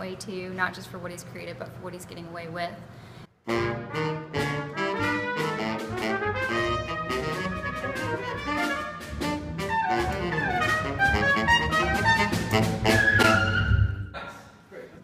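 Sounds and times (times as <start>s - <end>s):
trumpet: 3.4s - 14.1s
alto saxophone: 3.4s - 14.2s
double bass: 3.5s - 14.2s.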